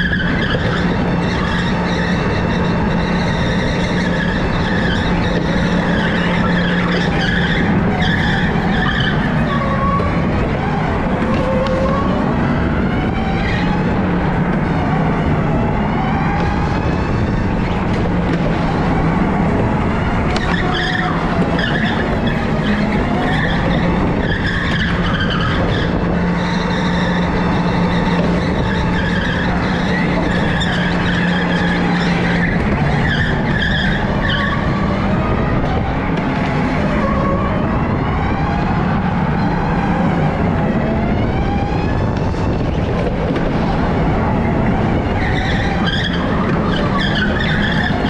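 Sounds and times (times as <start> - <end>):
electric go-kart motor whine: 0.0 - 48.0
tyres skidding: 0.0 - 48.0.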